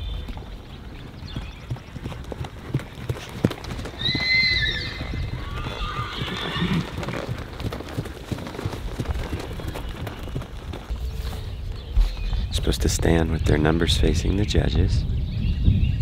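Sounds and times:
hooves on sand: 0.0s - 13.2s
horse whinnying: 3.9s - 7.5s.

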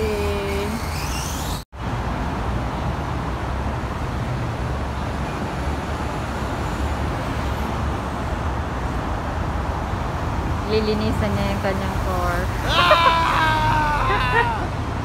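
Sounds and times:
low rumble of road traffic: 0.0s - 15.0s.

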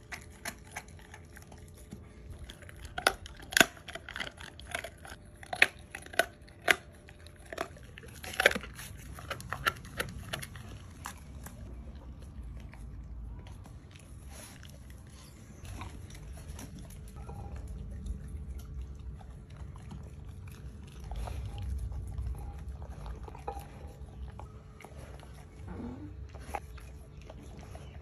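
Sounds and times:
dog chewing and licking: 0.0s - 28.0s
low rumble: 9.2s - 26.6s.

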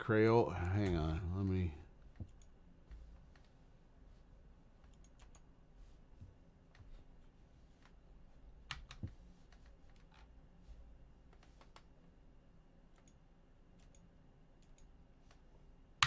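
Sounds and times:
computer clicks and key taps: 4.9s - 5.5s, 12.9s - 13.2s, 13.8s - 15.4s.

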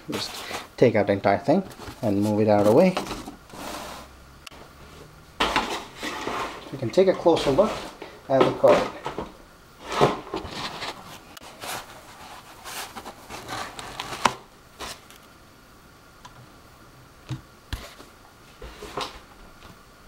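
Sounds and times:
scraping and rustling on foam: 1.6s - 4.1s, 5.5s - 9.0s, 9.8s - 15.1s.

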